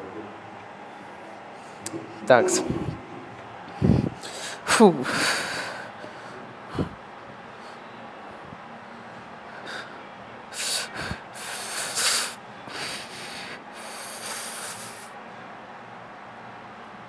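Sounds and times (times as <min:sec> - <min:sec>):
hissing breaths: 0:09.5 - 0:15.2.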